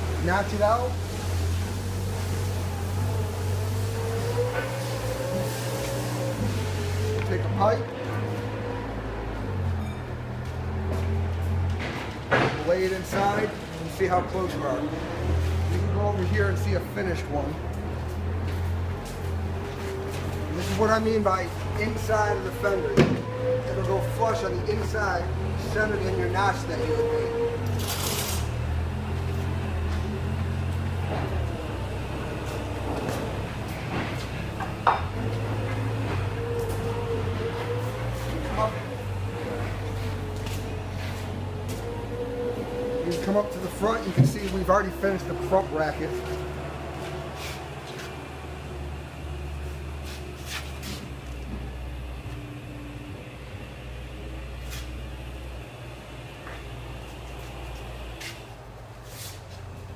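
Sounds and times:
low mechanical hum: 0.0s - 59.9s
heavy truck idling: 28.4s - 59.9s.

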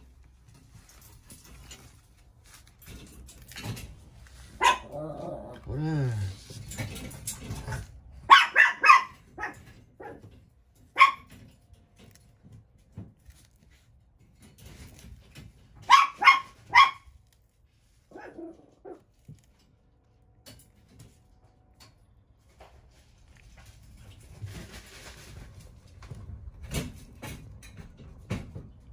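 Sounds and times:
dog barking: 4.6s - 5.0s, 8.2s - 10.3s, 10.9s - 11.4s, 15.8s - 17.1s, 18.1s - 19.0s.

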